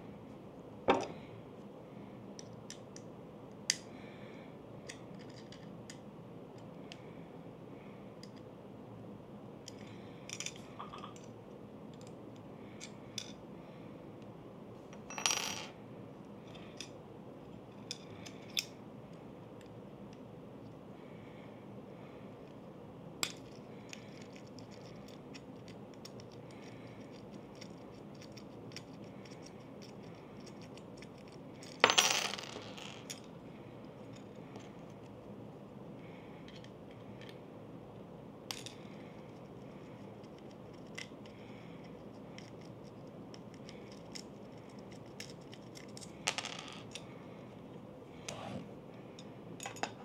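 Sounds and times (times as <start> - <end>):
metal parts clicking and tapping: 23.2 - 33.3, 43.3 - 47.1, 49.2 - 50.0.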